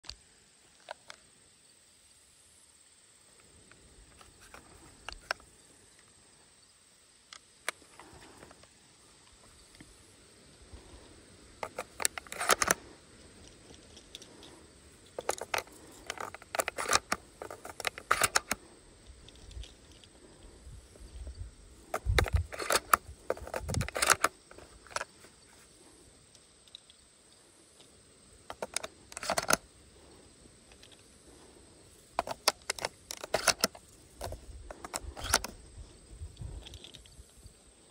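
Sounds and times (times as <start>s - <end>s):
shotgun being handled clicking: 4.1s - 5.5s, 11.6s - 20.5s, 21.9s - 25.2s, 28.5s - 29.6s, 32.2s - 35.6s.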